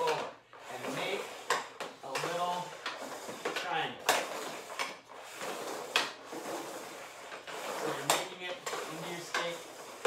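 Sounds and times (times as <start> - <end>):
puck clacking on stick: 0.0 - 6.3, 7.4 - 10.0
hockey stick and puck scraping: 0.0 - 10.0.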